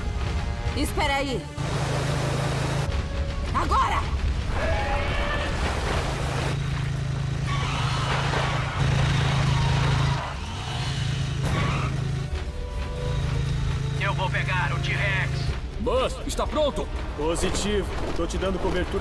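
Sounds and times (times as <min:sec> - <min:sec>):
cartoon buggy engine drone: 0:06.0 - 0:14.6.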